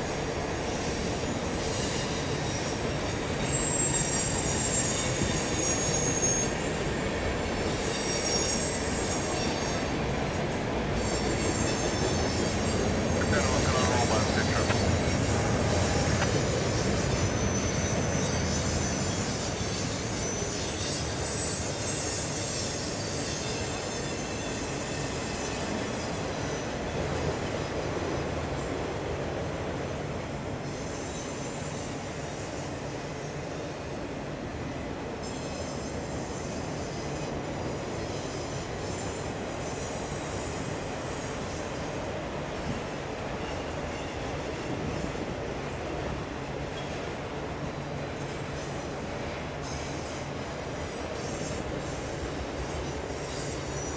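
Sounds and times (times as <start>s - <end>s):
train wheels rumbling on rail: 0.0s - 53.9s
wheel squeals: 0.6s - 10.1s, 10.9s - 26.6s, 48.2s - 53.9s.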